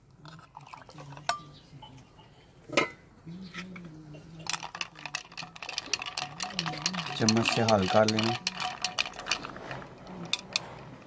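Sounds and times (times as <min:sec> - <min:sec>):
ice and spoon clinking in glass: 0:04.4 - 0:10.8.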